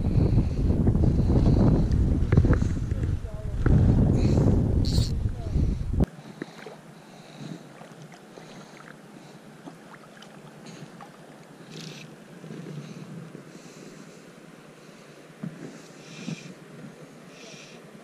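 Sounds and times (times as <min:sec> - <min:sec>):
light wind: 0:00.0 - 0:18.0
gentle river water: 0:04.9 - 0:18.0.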